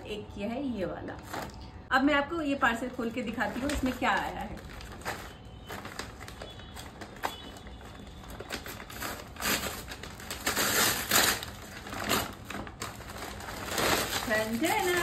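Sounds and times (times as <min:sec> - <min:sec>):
paper mailer tearing: 0:03.2 - 0:15.0.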